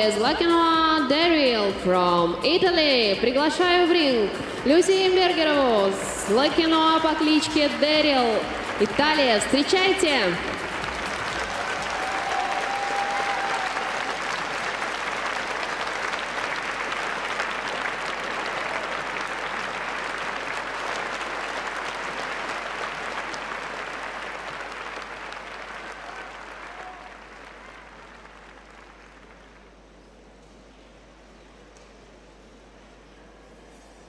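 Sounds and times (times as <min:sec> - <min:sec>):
audience applauding: 0:08.5 - 0:29.8.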